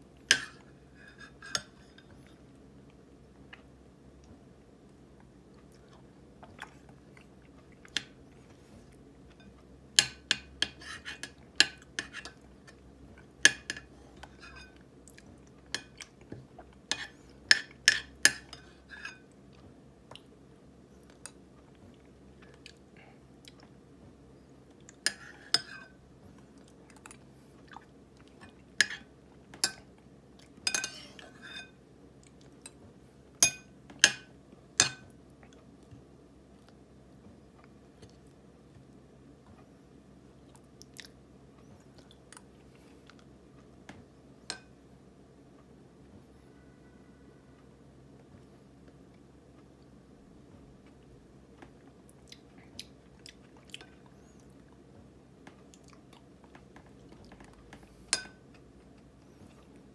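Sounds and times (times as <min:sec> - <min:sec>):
spoon scraping ceramic bowl: 0:10.6 - 0:11.4, 0:14.3 - 0:14.8, 0:30.7 - 0:31.8.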